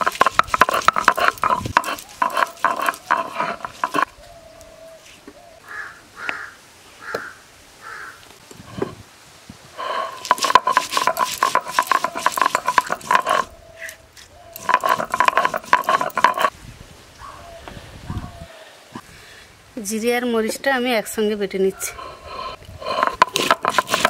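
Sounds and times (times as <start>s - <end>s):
stone roller grinding spices: 0.0s - 4.1s, 9.8s - 13.5s, 14.5s - 16.5s, 22.0s - 24.0s.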